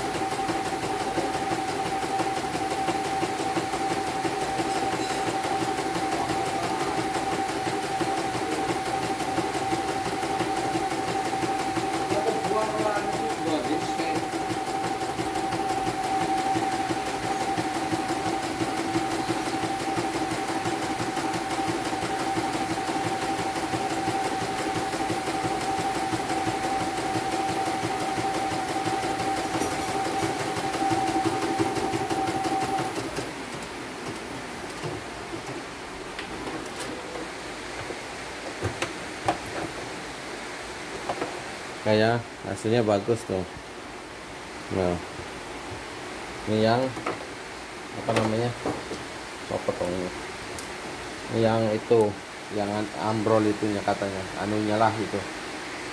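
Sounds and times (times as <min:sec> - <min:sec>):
embroidery machine stitching: 0:00.0 - 0:35.6.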